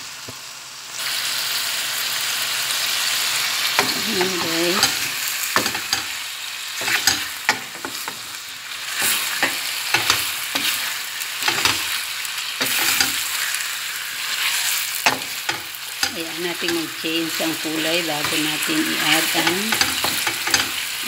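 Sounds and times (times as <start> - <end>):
chicken sizzling in a pan: 0.0 - 21.0
wooden spatula scraping a pan: 6.8 - 11.9, 12.6 - 16.9.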